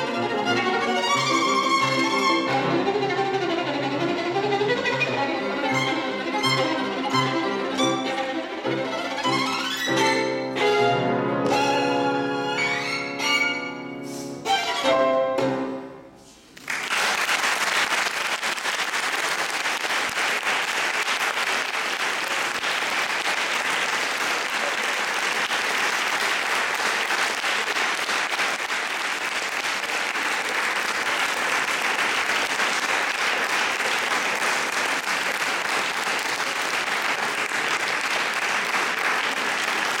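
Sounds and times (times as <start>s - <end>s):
audience applauding: 16.6s - 40.0s.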